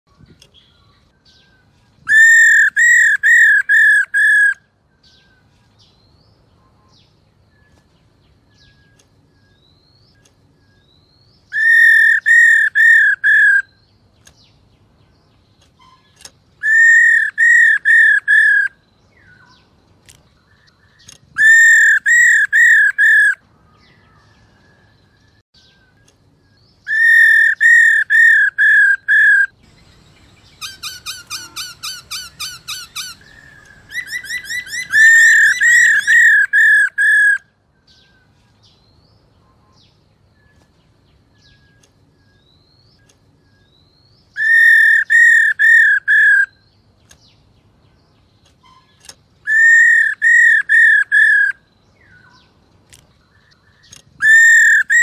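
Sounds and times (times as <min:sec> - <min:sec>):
bird whistled calls: 0:01.2 - 0:05.4, 0:11.5 - 0:13.8, 0:15.8 - 0:19.5, 0:21.0 - 0:23.4, 0:26.8 - 0:38.1, 0:44.3 - 0:46.7, 0:48.6 - 0:52.4, 0:54.2 - 0:55.0.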